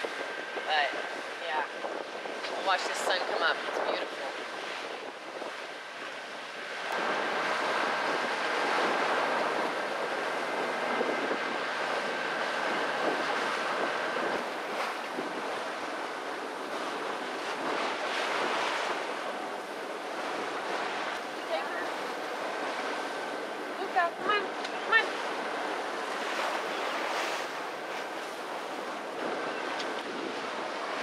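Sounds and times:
sea waves: 0:00.0 - 0:31.0
wind buffeting microphone: 0:00.0 - 0:31.0.

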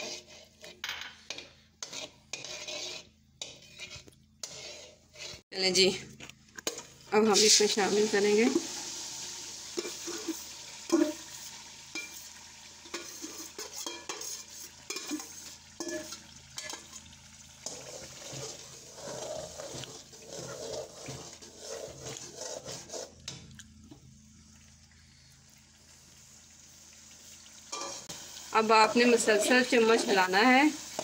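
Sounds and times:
metal spoon scraping metal: 0:00.0 - 0:05.4, 0:09.8 - 0:12.3, 0:12.9 - 0:16.9, 0:17.6 - 0:23.3
faint sizzle: 0:00.0 - 0:31.0.

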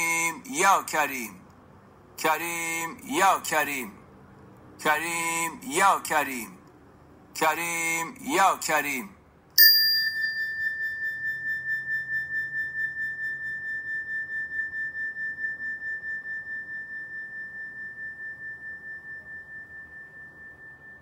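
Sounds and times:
struck metal bell ringing: 0:09.6 - 0:19.7.

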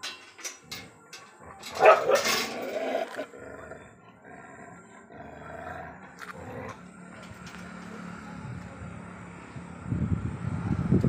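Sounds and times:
dog barking and growling: 0:01.4 - 0:06.8.

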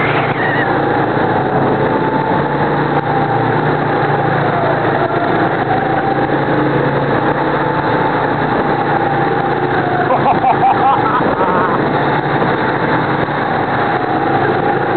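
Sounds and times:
go-kart engine whining: 0:00.0 - 0:14.9.

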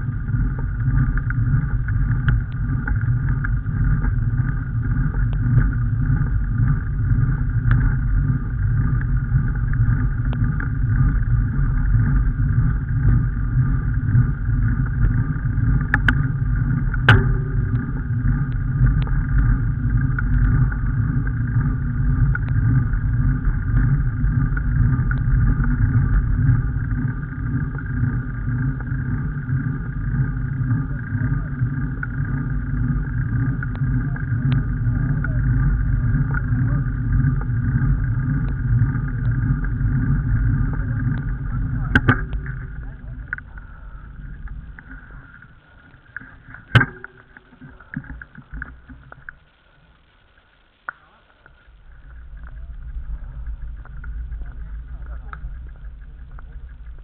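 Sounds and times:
vehicle rumble on road: 0:51.5 - 0:57.0.

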